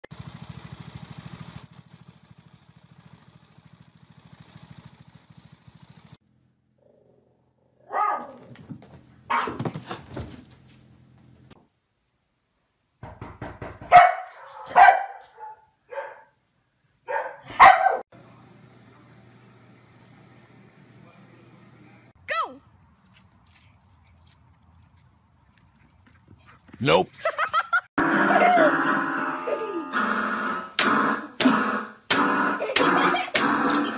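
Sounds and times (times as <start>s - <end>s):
string trimmer running: 0.1s - 6.2s, 30.7s - 33.9s
dog barking: 7.8s - 8.6s, 9.3s - 9.7s, 13.9s - 16.4s, 17.0s - 18.1s.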